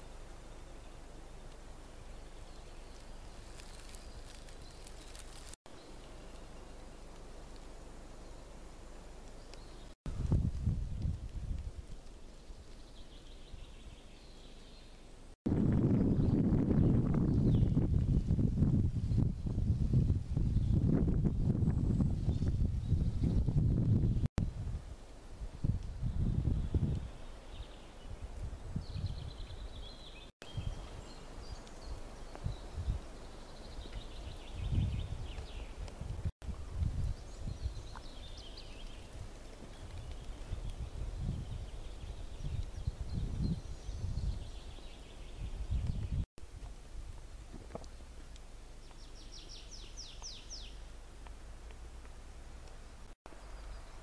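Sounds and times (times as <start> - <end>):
songbird singing: 0.0 - 24.6, 25.5 - 46.3, 47.7 - 51.4, 52.6 - 54.0
wind buffeting microphone: 10.1 - 12.0, 15.5 - 27.2, 28.1 - 29.8, 32.4 - 33.1, 34.2 - 38.4, 39.1 - 44.7, 45.4 - 46.3.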